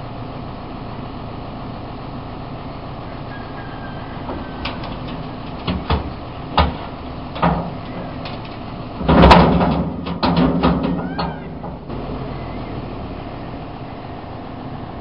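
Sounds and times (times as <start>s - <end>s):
tractor engines running: 0.0s - 15.0s
thuds and clunks: 4.3s - 12.0s.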